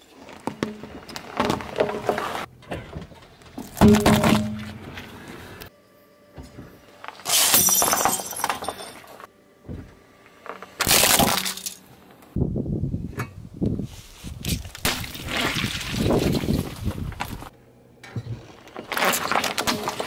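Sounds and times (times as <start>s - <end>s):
crunching crash: 0.4s - 5.4s, 10.7s - 11.9s, 14.5s - 17.5s
candy dish shattering under tyre: 7.2s - 9.1s, 10.8s - 11.8s.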